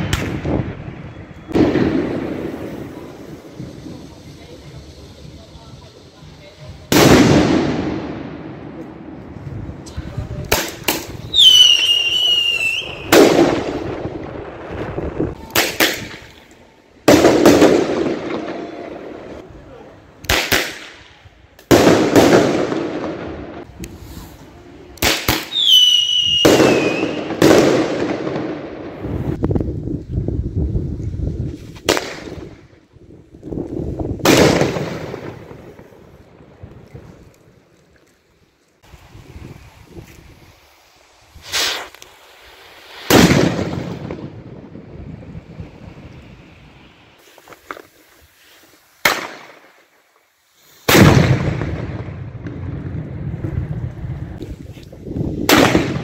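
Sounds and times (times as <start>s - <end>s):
firecracker cracks: 0.0s - 0.6s, 6.8s - 8.2s, 9.8s - 14.1s, 15.3s - 18.7s, 20.1s - 29.1s, 31.5s - 32.7s, 33.5s - 37.5s, 41.3s - 44.4s, 47.2s - 50.0s, 50.7s - 53.4s, 54.2s - 56.0s
echoing firework bangs: 0.0s - 4.0s, 6.9s - 8.8s, 10.5s - 16.4s, 17.0s - 19.4s, 21.7s - 23.7s, 25.0s - 29.3s, 34.2s - 36.7s, 42.9s - 45.0s, 50.8s - 54.4s, 55.4s - 56.0s
whistling firework: 0.0s - 8.4s, 10.5s - 19.5s, 21.7s - 29.4s, 41.4s - 56.0s.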